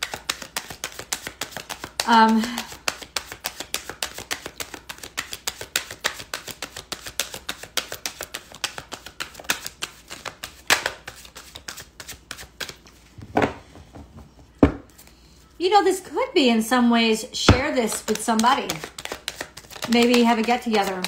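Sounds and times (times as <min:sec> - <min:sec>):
cards being shuffled: 0:00.0 - 0:13.3, 0:17.5 - 0:21.0.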